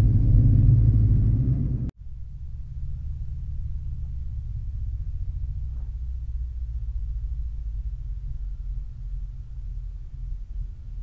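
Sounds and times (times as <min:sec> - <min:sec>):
pickup truck engine rumbling: 0:00.0 - 0:11.0.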